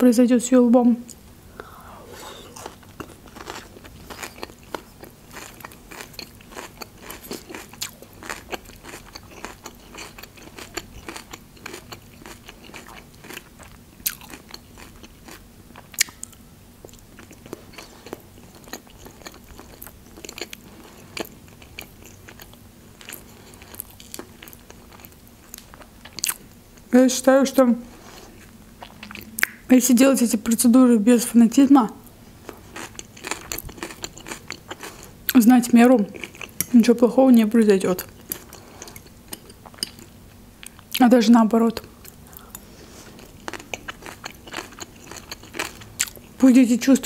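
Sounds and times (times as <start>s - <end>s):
crunching and chewing raw salad: 1.1s - 26.9s, 27.9s - 29.7s, 32.0s - 36.8s, 37.8s - 41.0s, 41.8s - 46.4s.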